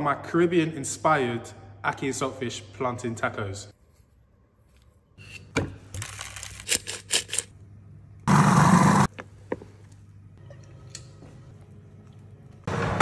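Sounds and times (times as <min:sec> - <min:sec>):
food processor running: 0:08.3 - 0:09.1.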